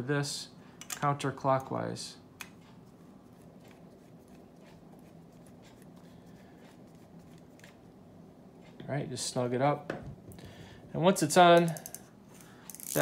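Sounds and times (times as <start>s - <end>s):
low steady hum: 0.0s - 13.0s
screwdriver ticks and scrapes: 12.7s - 13.0s.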